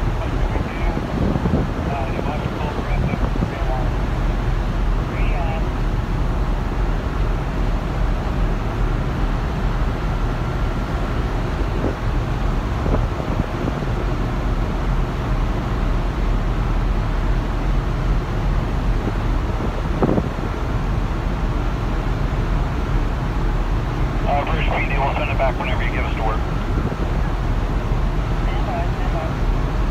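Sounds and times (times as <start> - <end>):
wind buffeting microphone: 0.0 - 5.1, 11.2 - 15.1, 18.5 - 22.7, 26.0 - 29.9
churning sea water: 0.0 - 29.9.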